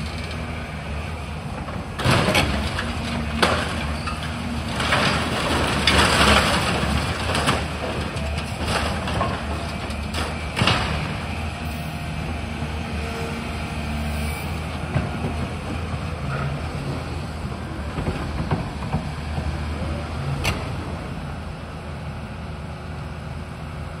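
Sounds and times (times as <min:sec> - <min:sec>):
excavator diesel engine running: 0:00.0 - 0:24.0
demolition knocks and cracks: 0:01.6 - 0:11.3.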